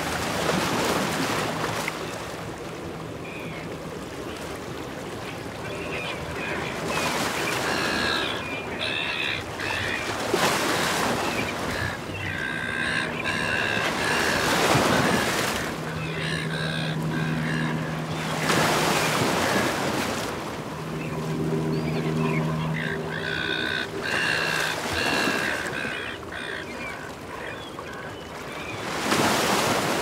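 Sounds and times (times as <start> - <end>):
seagulls calling: 5.2 - 30.0
low steady hum: 11.1 - 28.8.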